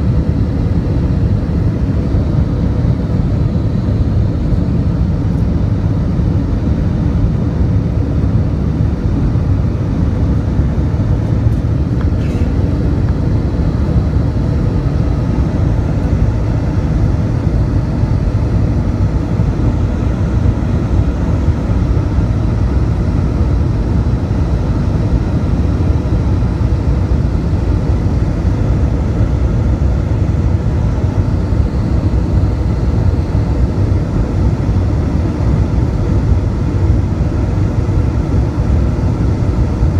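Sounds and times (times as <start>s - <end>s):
faint steady hum: 0.0s - 39.9s
jet engines rumbling: 0.0s - 39.9s
rushing air: 11.1s - 16.9s.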